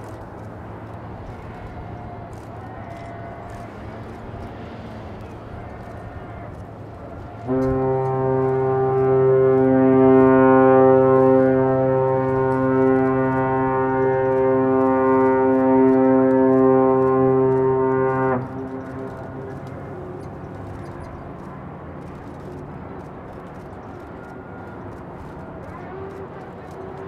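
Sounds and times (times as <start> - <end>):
ship's whistle long blast: 0.8 - 27.0.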